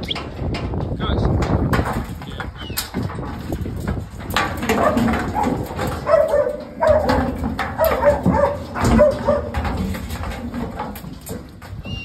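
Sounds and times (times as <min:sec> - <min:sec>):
dog barking: 0:04.7 - 0:09.6.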